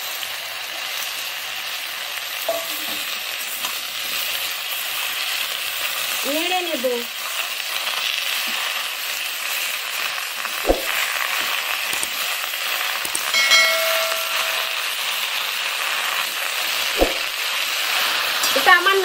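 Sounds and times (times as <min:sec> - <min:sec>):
vegetables sizzling in hot oil: 0:00.0 - 0:19.0
sharp knock: 0:10.7 - 0:11.0, 0:17.0 - 0:17.3
short ringing chime: 0:13.2 - 0:15.0.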